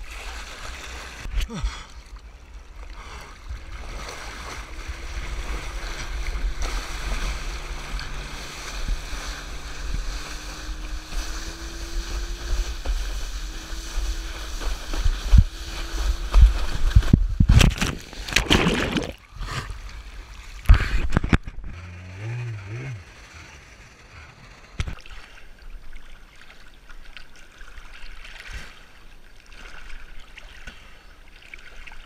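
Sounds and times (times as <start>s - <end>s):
faint boat engine drone: 0.0s - 32.0s
water rushing and splashing: 0.0s - 32.0s
wind buffeting microphone: 3.4s - 18.3s.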